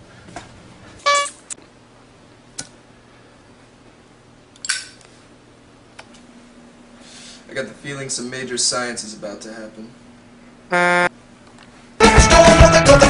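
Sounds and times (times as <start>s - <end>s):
faint steady hum: 0.0s - 12.0s
short pitched sound: 10.7s - 11.1s.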